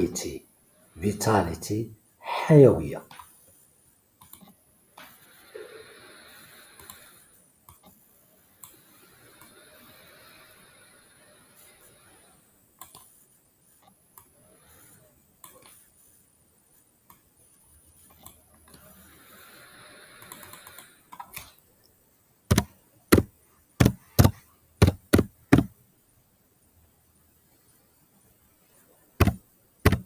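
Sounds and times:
keyboard keys tapping: 22.5s - 25.7s, 29.2s - 30.0s.

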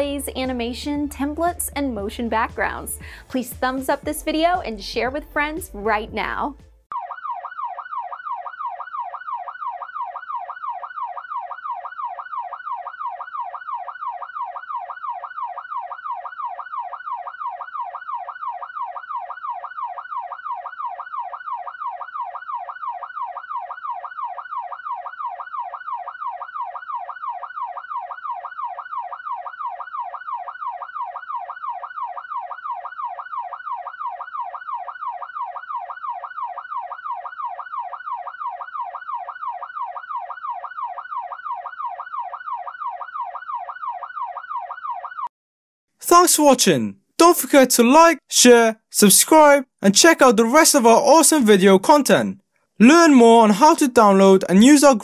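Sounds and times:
police siren yelp: 6.9s - 45.3s.

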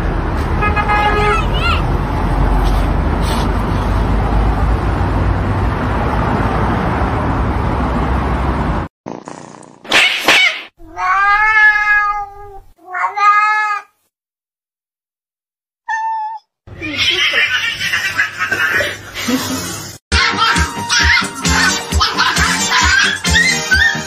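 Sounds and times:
cat meowing: 10.8s - 14.0s, 15.9s - 16.5s.

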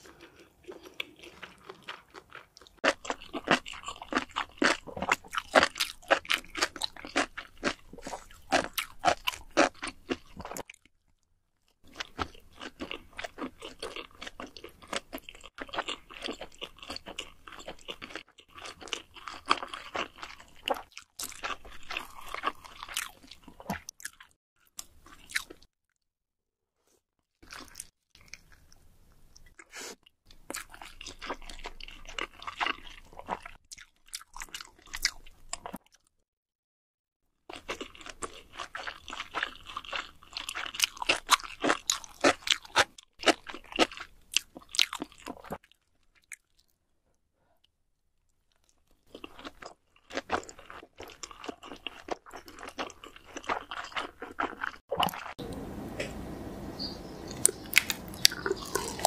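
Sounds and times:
crackly chewing and biting: 0.0s - 25.7s, 27.4s - 36.1s, 37.5s - 46.8s, 47.6s - 55.6s, 57.3s - 59.0s
wet mouth sounds: 57.3s - 59.0s.

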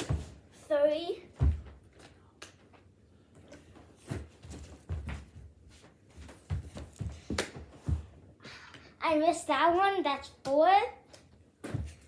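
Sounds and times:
dull thumps of child running: 4.0s - 8.2s.

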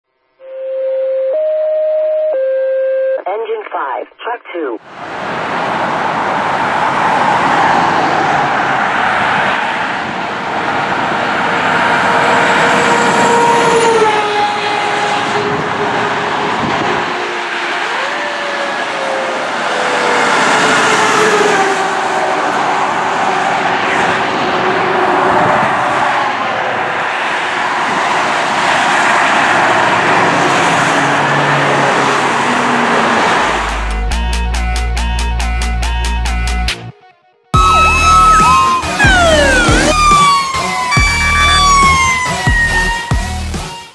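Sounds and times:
two-note fire engine siren: 0.4s - 3.2s, 11.6s - 23.8s, 36.9s - 43.5s
highway traffic noise: 3.2s - 35.8s, 37.6s - 43.9s
cars driving past: 4.8s - 34.1s.

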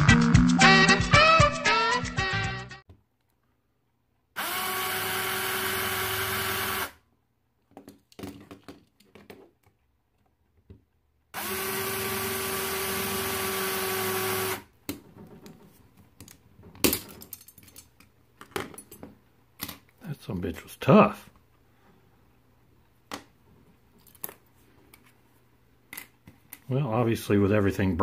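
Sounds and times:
drill press motor whine: 4.4s - 7.0s, 11.4s - 14.6s.

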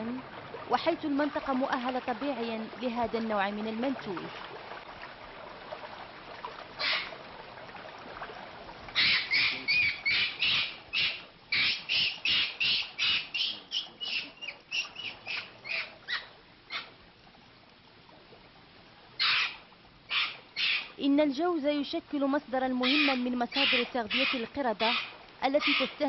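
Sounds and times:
squawking animal calls: 6.8s - 7.2s, 8.9s - 17.0s, 19.2s - 20.9s, 22.8s - 26.0s.

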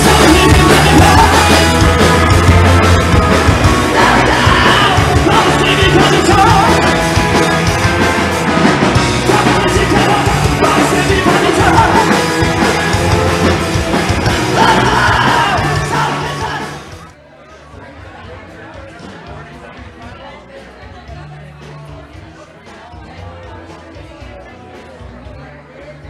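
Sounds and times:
person singing: 0.0s - 16.9s
live rock band playing: 0.0s - 17.1s.

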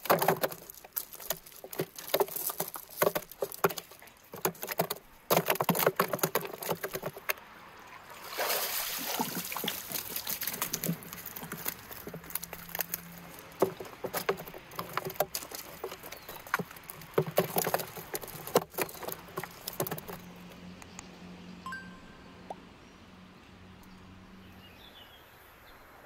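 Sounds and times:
fish flopping in plastic tub: 0.0s - 7.4s, 8.2s - 20.5s.

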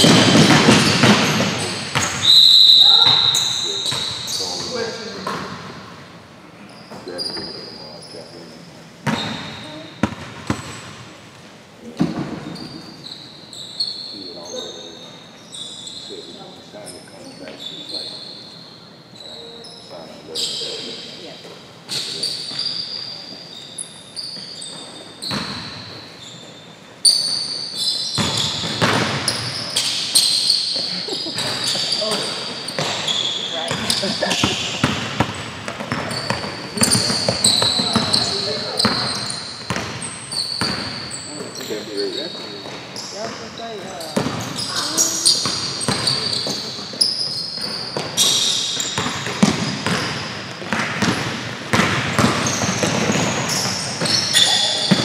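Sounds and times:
basketball bouncing: 0.0s - 2.2s, 9.0s - 11.0s, 28.2s - 30.1s, 31.4s - 41.0s, 44.2s - 46.7s, 47.6s - 55.0s
sneakers squeaking on hardwood: 0.0s - 6.0s, 6.6s - 11.2s, 11.8s - 55.0s.

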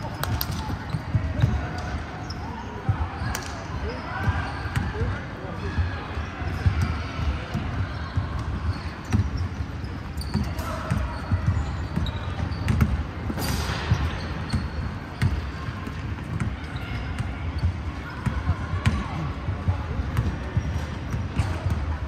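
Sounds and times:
players' voices: 0.0s - 22.0s
basketballs bouncing on hardwood: 10.2s - 13.0s.

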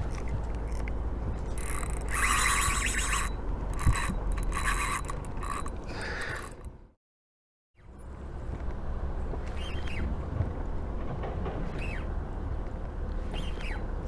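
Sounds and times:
fishing reel gears whirring: 1.5s - 6.7s
wind rumble on microphone: 8.4s - 14.0s.

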